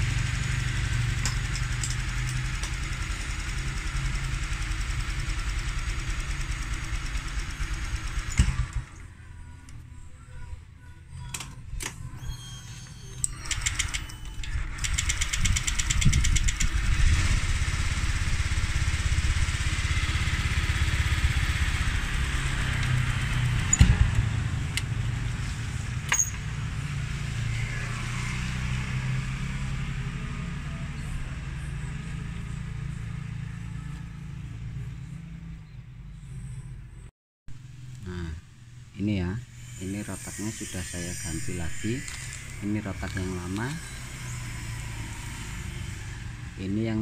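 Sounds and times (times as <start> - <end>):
scooter engine running: 0.0 - 9.2, 14.5 - 35.4.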